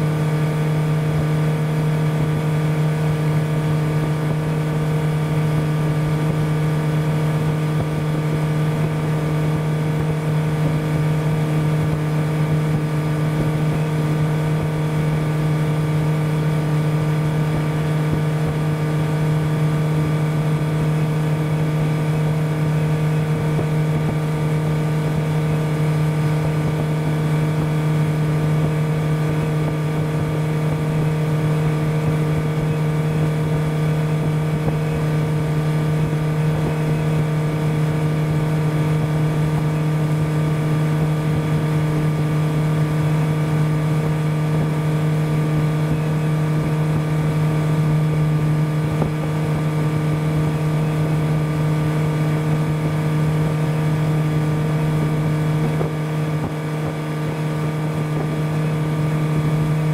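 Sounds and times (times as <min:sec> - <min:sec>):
motorboat engine running: 0:00.0 - 0:59.9.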